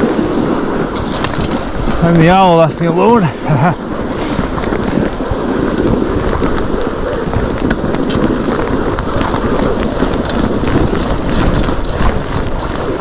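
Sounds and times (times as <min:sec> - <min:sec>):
bike tyres clicking and crackling: 0:00.0 - 0:13.0
wind rushing over microphone: 0:00.0 - 0:13.0.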